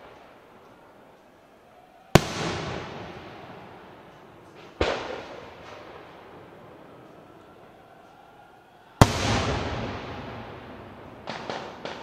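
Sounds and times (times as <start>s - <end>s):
fireworks bursting in sharp bangs: 0.0s - 0.5s, 2.1s - 7.1s, 9.0s - 12.0s.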